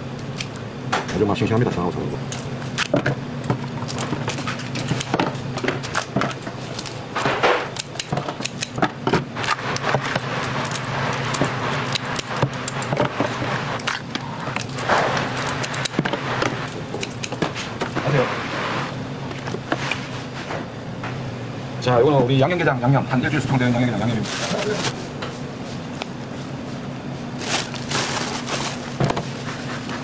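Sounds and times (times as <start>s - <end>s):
steady low hum: 0.0s - 30.0s
scissors snipping crab shell: 3.9s - 5.2s, 7.7s - 8.8s, 13.8s - 16.0s.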